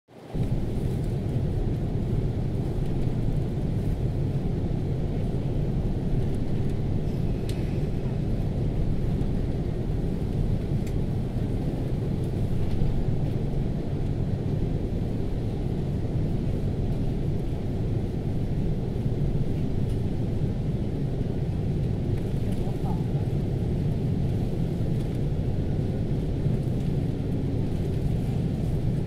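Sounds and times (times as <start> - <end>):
aircraft rolling on taxiway: 0.1 - 29.0
jet engines low rumble: 0.1 - 29.0.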